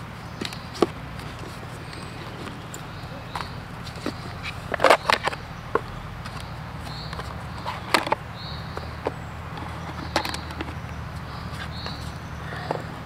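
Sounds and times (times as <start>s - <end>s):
plastic utensils clattering: 7.1s - 8.2s, 9.0s - 10.8s.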